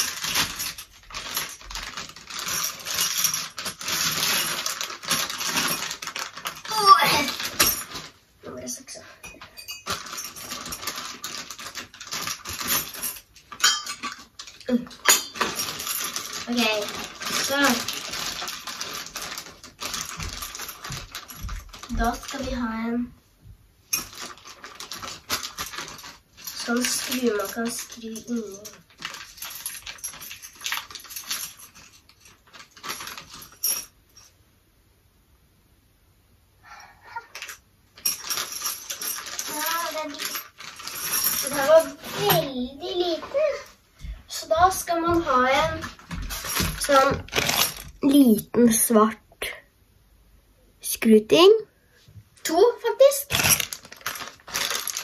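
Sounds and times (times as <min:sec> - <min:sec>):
plastic bag crackling: 0:00.0 - 0:08.2, 0:09.8 - 0:13.2, 0:14.4 - 0:22.8, 0:24.0 - 0:31.5, 0:32.4 - 0:33.6, 0:38.0 - 0:43.6, 0:45.7 - 0:48.4, 0:53.0 - 0:55.0
screws rattling in a bag: 0:00.0 - 0:08.2, 0:09.3 - 0:22.9, 0:23.9 - 0:34.3, 0:37.1 - 0:44.6, 0:45.5 - 0:48.4, 0:52.5 - 0:55.0
small metal parts clinking: 0:00.0 - 0:08.2, 0:09.2 - 0:22.5, 0:23.9 - 0:34.4, 0:37.2 - 0:42.5, 0:45.9 - 0:48.4, 0:53.2 - 0:55.0.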